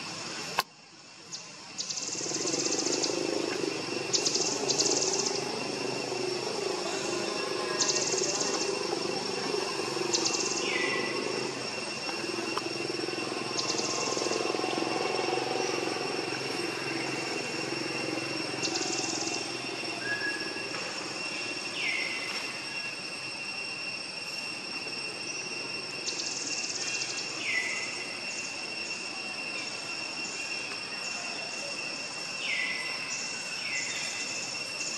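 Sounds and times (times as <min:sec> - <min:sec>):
high-pitched insect drone: 0:00.0 - 0:34.9
rapid chirping: 0:01.3 - 0:34.9.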